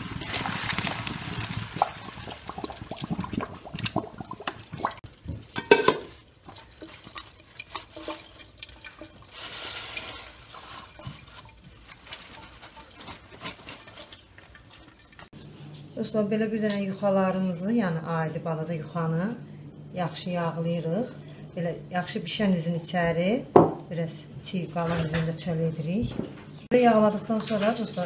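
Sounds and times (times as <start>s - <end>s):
kitchen utensils clinking and scraping: 5.4s - 15.3s, 26.5s - 28.0s.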